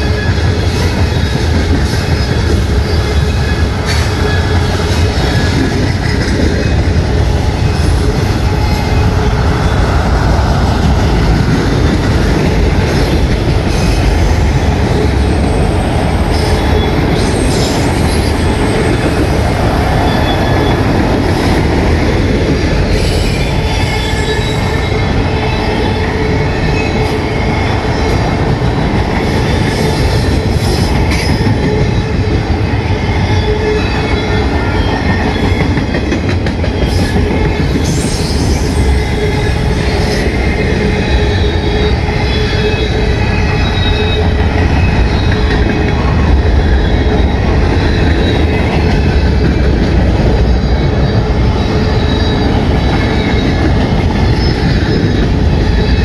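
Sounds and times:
train wheels rumbling on rails: 0.0s - 56.0s
high-pitched wheel squeal: 22.8s - 28.2s, 36.8s - 49.6s.

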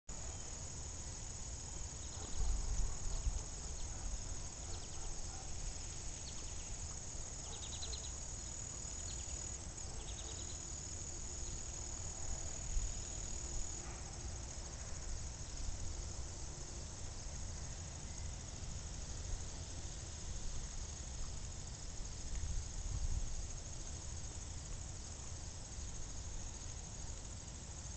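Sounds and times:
insects chirping: 0.1s - 27.9s.

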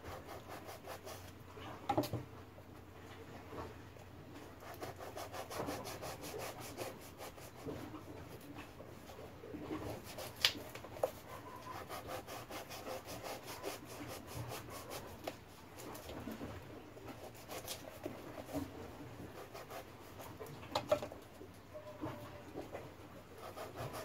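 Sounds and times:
knife rasping on float: 9.8s - 15.9s, 17.1s - 20.3s, 23.4s - 24.0s.

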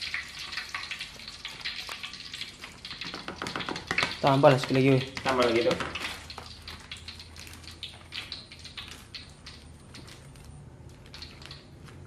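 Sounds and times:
plastic bag crinkling: 5.4s - 12.0s.

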